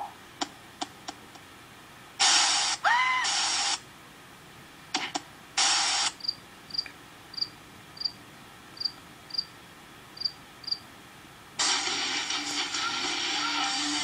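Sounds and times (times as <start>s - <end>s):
loud hiss burst: 2.2s - 3.8s, 5.6s - 6.2s, 11.6s - 12.7s
cricket chirps: 6.2s - 8.2s, 8.8s - 9.6s, 10.2s - 10.8s.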